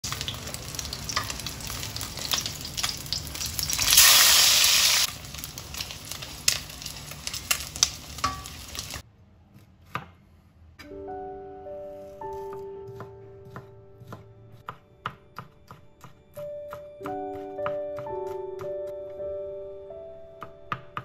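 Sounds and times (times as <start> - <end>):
oil sizzling and crackling: 0.0 - 9.0.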